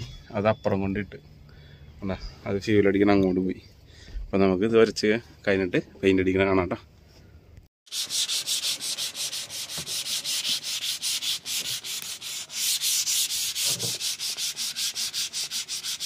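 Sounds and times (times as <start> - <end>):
sandpaper rubbing strokes: 7.9 - 16.0.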